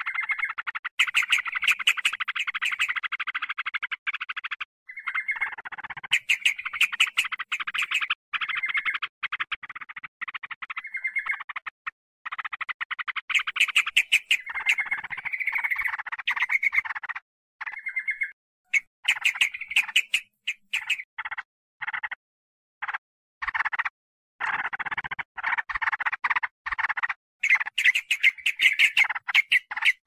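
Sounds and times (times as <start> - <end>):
bulbuls chattering: 13.4 - 16.8, 18.7 - 21.0, 27.4 - 30.0.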